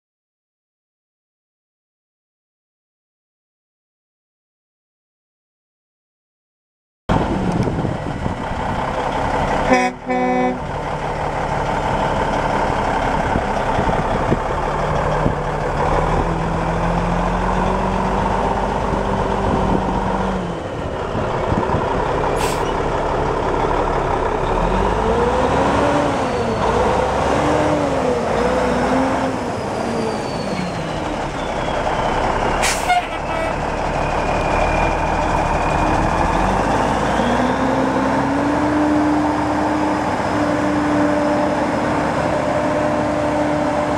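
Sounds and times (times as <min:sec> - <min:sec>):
truck diesel engine revving: 0:07.1 - 0:43.9
truck horn blast: 0:09.6 - 0:10.7, 0:32.6 - 0:33.6.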